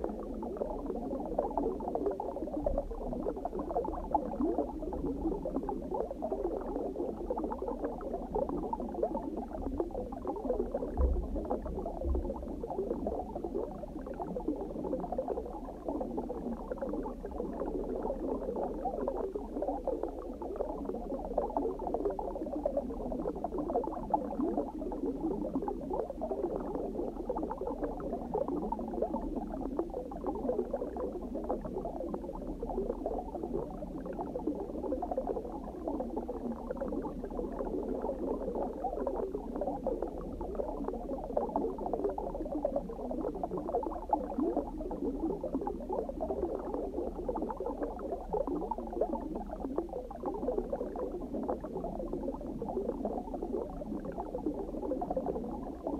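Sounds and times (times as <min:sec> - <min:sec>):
underwater bubbling and gurgling: 0:00.0 - 0:55.9.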